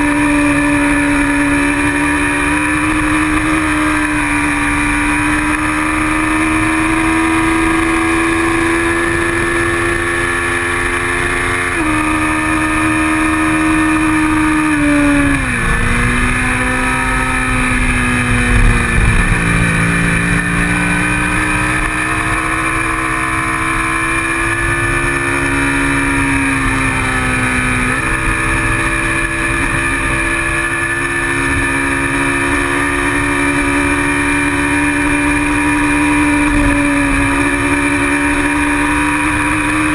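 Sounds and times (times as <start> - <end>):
motorcycle engine revving: 0.0 - 39.9
wind buffeting microphone: 17.4 - 21.7.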